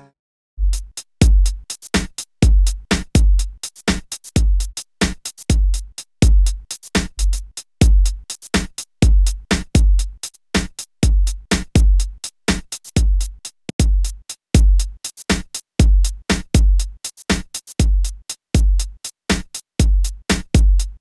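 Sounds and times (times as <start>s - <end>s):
deep bass-drum kicks: 0.6s - 1.7s, 2.4s - 3.6s, 4.4s - 4.8s, 5.5s - 8.2s, 9.0s - 10.2s, 11.0s - 12.2s, 13.0s - 17.0s, 17.8s - 21.0s
electronic drum-machine beat: 0.6s - 21.0s.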